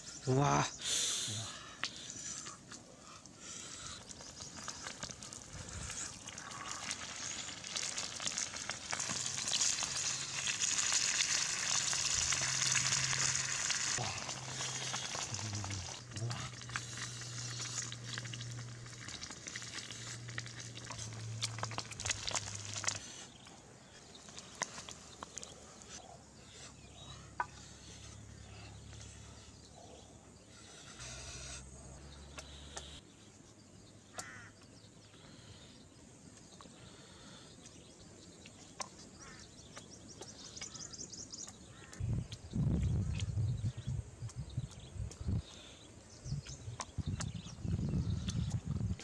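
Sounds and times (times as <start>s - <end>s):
egg sizzling in a pan: 4.0s - 23.2s.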